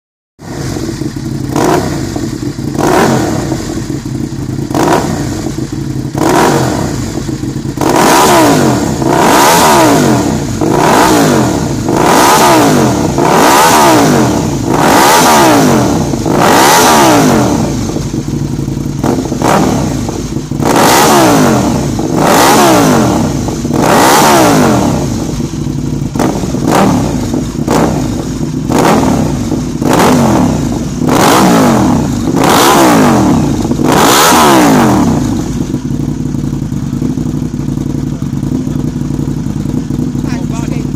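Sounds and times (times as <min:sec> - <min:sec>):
motorcycle engine revving: 0:00.4 - 0:40.9.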